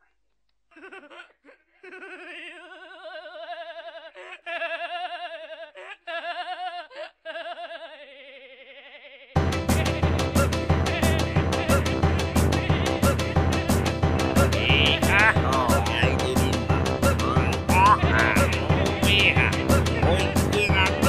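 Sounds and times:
person laughing: 0.7 - 21.0
loud music with a beat: 9.4 - 21.0.

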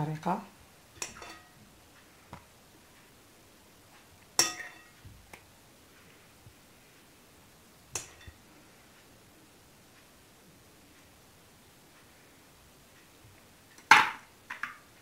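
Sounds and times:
glass cups clinking: 1.0 - 1.6, 4.4 - 5.0.

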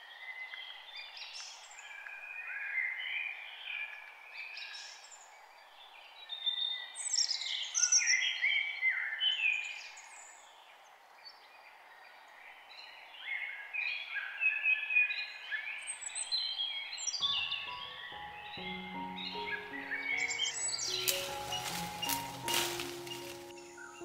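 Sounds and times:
songbirds singing: 0.1 - 24.0.

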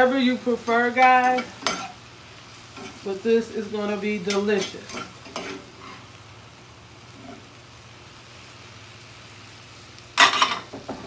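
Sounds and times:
vegetables sizzling in a skillet: 0.0 - 11.0
spatula scraping a pan: 4.2 - 6.2.

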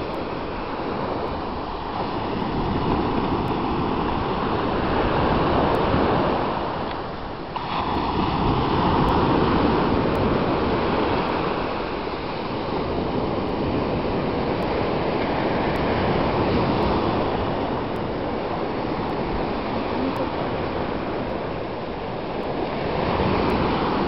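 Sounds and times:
sea waves breaking on shore: 0.0 - 24.0
foam washing over wet sand: 7.4 - 18.8.

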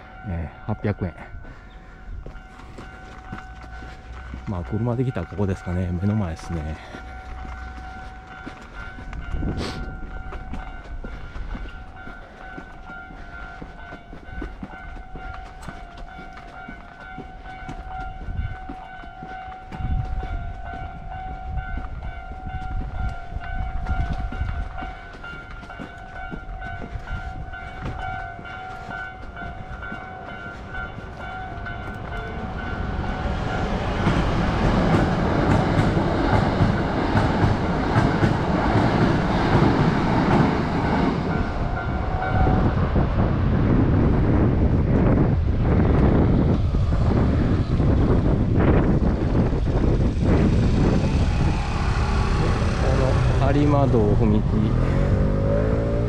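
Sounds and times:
level crossing alarm bell ringing: 0.0 - 35.3
electric train passing: 0.0 - 56.0.

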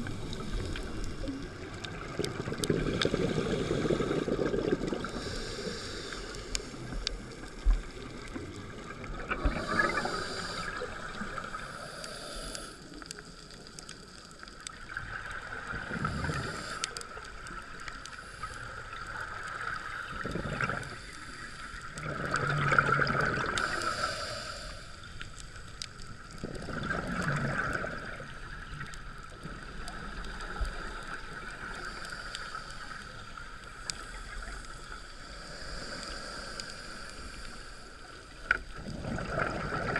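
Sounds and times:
diver's exhaled bubbles gurgling: 0.0 - 5.7, 6.7 - 11.9, 14.9 - 16.8, 19.0 - 21.1, 21.9 - 23.8, 26.3 - 31.7, 38.7 - 39.9
steady underwater drone: 0.0 - 39.9.

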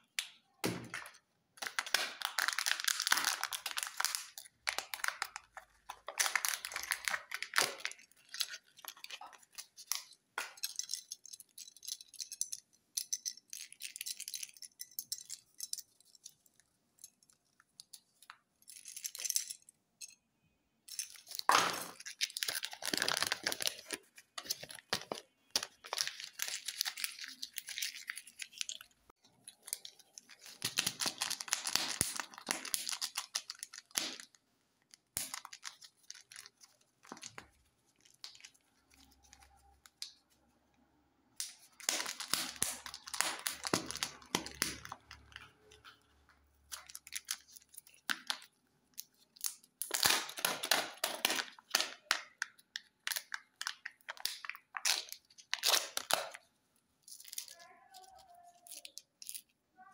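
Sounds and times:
plastic foil wrapper crinkling: 0.9 - 19.6, 20.9 - 40.4, 41.4 - 59.5.

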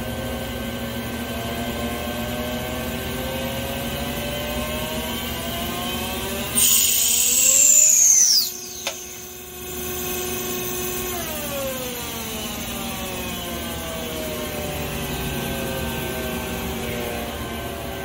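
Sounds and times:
lathe spindle whine winding down: 0.0 - 18.0
lower machine whine: 0.0 - 18.0
machine running hum: 0.0 - 18.0
sharp click: 8.4 - 9.2.

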